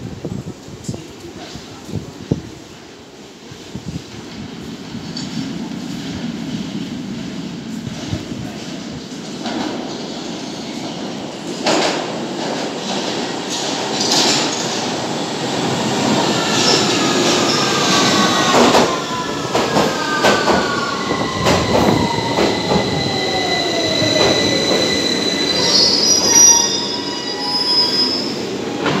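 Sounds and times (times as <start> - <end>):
high-pitched brake squealing: 20.0 - 28.5.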